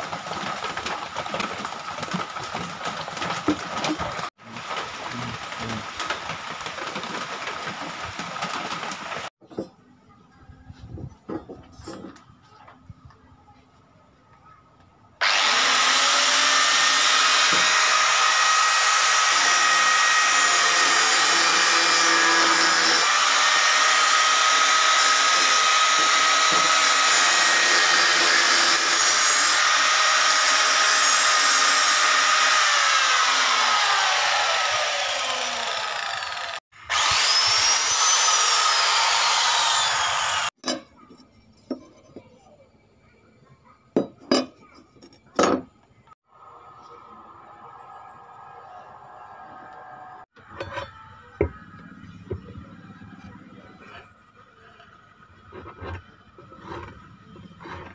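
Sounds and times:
angle grinder cutting steel: 15.2 - 40.6.

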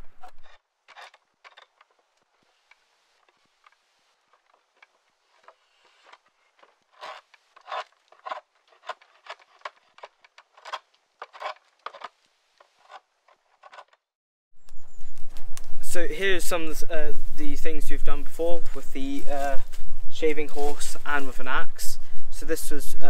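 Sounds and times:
draw knife shaving wood: 0.5 - 14.0.

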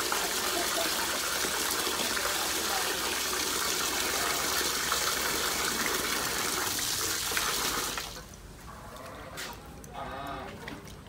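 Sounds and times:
running water rushing: 0.0 - 8.4.

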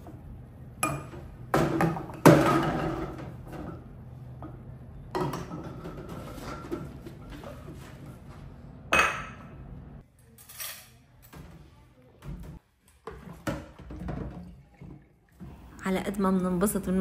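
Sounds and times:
dishes clinking and clattering: 0.8 - 3.9, 5.1 - 7.7, 12.4 - 15.1.

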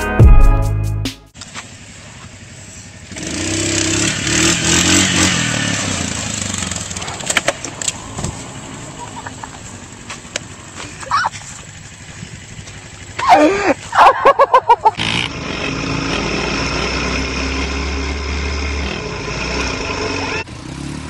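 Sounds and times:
quad bike engine running: 1.4 - 21.0
person crying out: 11.0 - 11.4, 13.2 - 14.9.

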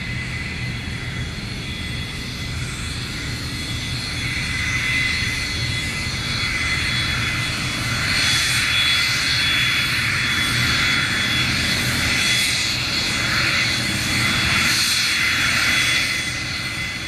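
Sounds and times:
jet engines whining: 0.0 - 17.0.

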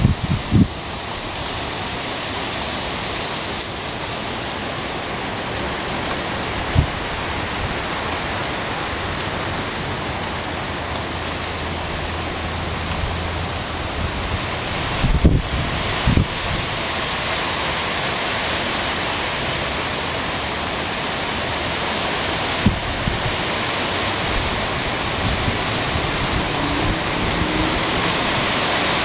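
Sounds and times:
wind gust thump on microphone: 0.0 - 0.8, 6.6 - 7.1
wind rushing through leaves: 0.0 - 29.0.

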